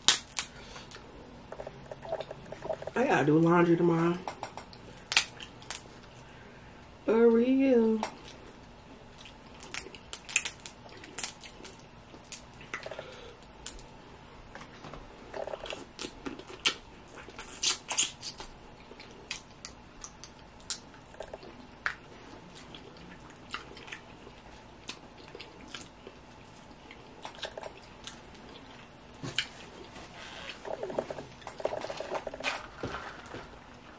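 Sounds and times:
chewing and mouth smacking: 9.1 - 13.0, 15.3 - 30.0
crab shell cracking: 9.6 - 12.8.

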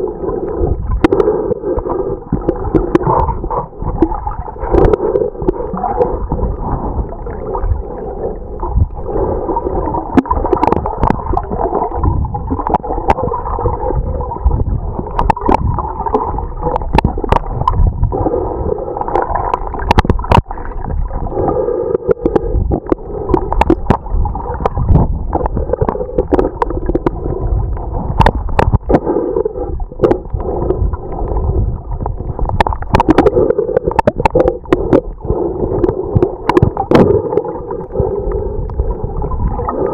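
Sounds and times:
underwater rumble and gurgle: 0.0 - 39.9
sharp underwater clicks: 10.0 - 13.8, 14.5 - 17.9, 19.0 - 31.4, 32.0 - 39.9.

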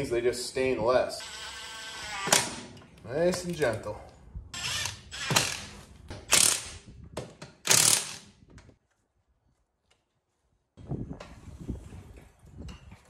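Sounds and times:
impact wrench bursts: 4.6 - 6.8, 7.6 - 8.3.

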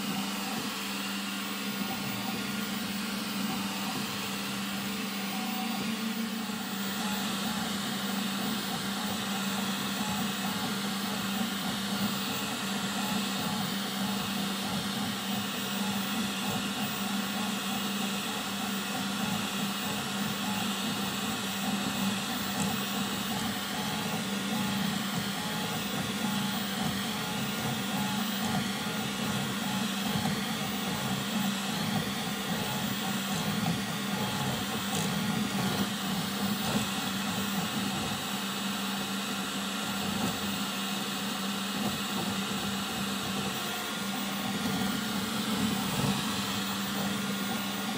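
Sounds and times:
stepper motors whining: 0.0 - 47.9
fan hum: 43.0 - 47.9.

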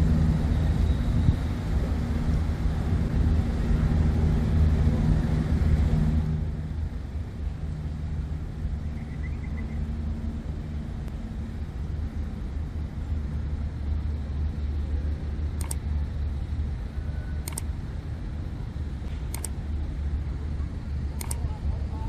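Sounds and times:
city traffic rumble: 0.0 - 22.0
short high clicks: 15.6 - 15.8, 17.4 - 17.7, 19.1 - 19.6, 21.2 - 21.4.

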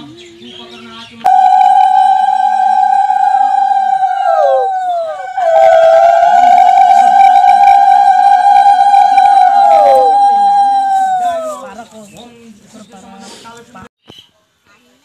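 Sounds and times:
conch shell blown: 1.3 - 11.6.

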